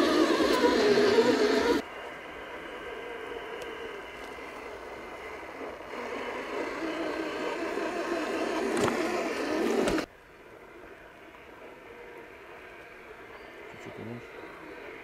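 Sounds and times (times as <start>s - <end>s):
electric motor whining: 0.0s - 10.1s.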